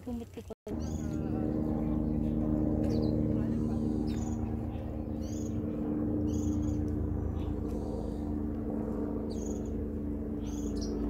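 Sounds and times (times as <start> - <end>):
steady low hum: 0.0 - 11.0
high bird chirps: 5.2 - 6.9, 9.3 - 9.8, 10.4 - 11.0.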